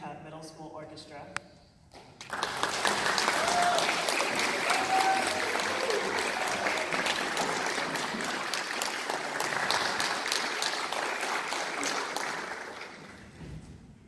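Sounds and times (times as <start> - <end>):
audience applauding: 2.2 - 13.4.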